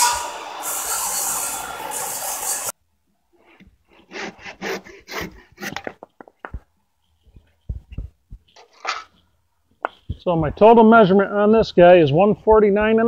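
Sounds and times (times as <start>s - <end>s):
circular saw cutting wood: 0.0s - 2.7s, 3.9s - 5.9s
handsaw rasping strokes: 3.4s - 5.9s.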